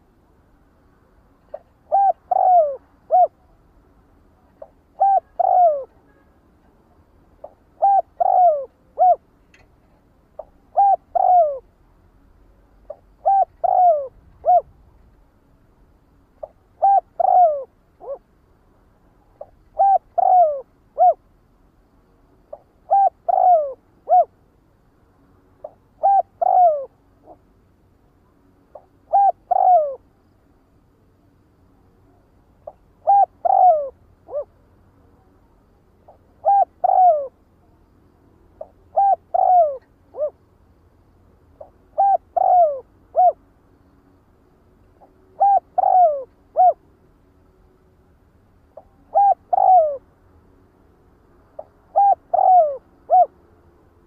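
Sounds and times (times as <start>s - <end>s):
dove cooing: 1.5s - 3.5s, 4.6s - 6.0s, 7.4s - 9.3s, 10.4s - 11.7s, 12.9s - 14.8s, 16.4s - 18.2s, 19.4s - 21.2s, 22.5s - 24.4s, 25.6s - 27.4s, 28.7s - 30.0s, 32.6s - 34.5s, 36.1s - 37.4s, 38.6s - 40.4s, 41.6s - 43.4s, 45.0s - 46.8s, 48.8s - 50.1s, 51.6s - 53.4s.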